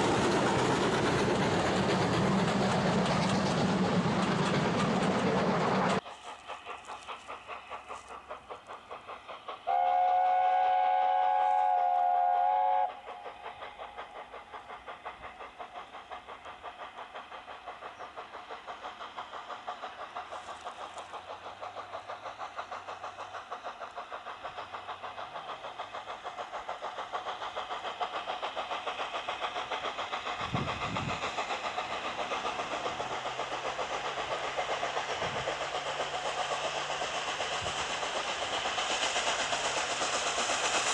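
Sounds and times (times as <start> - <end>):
steam engine chuffing: 0.0 - 40.9
steam locomotive whistle: 9.6 - 13.2.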